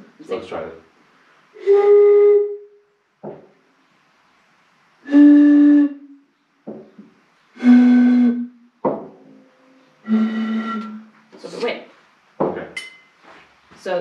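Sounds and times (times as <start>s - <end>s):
hooting notes blown across bottles: 1.5s - 2.8s, 5.0s - 6.3s, 7.6s - 8.7s, 9.3s - 11.6s
glass bottles knocking: 12.4s - 13.1s.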